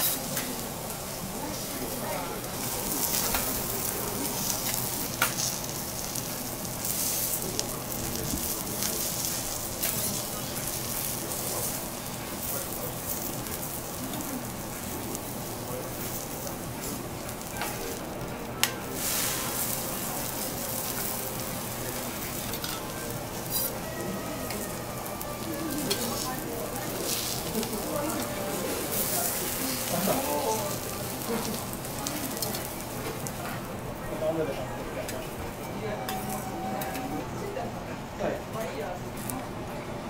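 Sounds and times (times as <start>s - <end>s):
vegetables sizzling on griddle: 0.0s - 34.4s.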